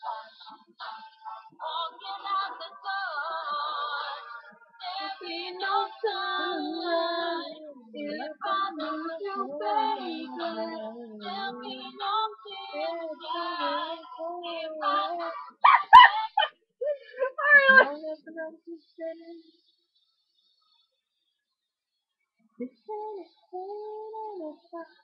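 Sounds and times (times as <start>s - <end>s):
girl singing long wavering notes: 6.0s - 15.4s.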